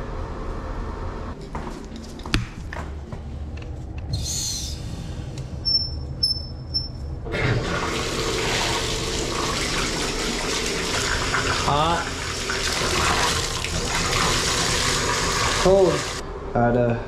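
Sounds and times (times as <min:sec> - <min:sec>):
short high chirps: 0:05.6 - 0:07.0
water running from bathtub spout: 0:07.3 - 0:16.2.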